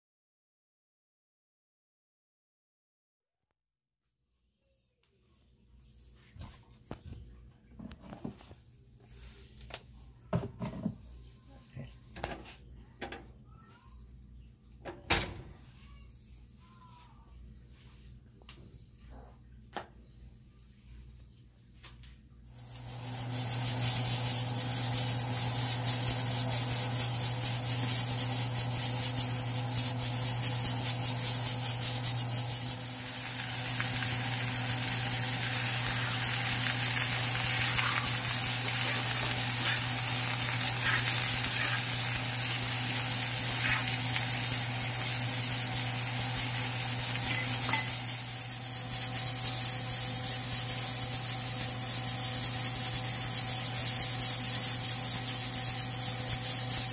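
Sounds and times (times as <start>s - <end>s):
vegetables sizzling in a pan: 22.5s - 56.9s
metal spatula scraping pan: 22.6s - 49.4s.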